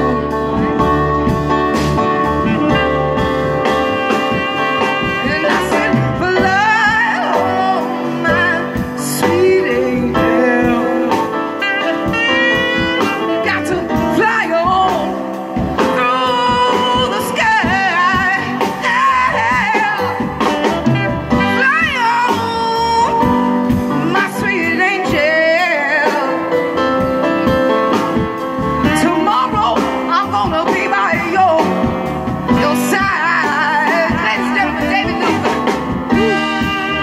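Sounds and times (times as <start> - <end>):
live jazz blues band: 0.0 - 37.0
melody with heavy vibrato: 0.0 - 37.0
piano: 0.0 - 37.0.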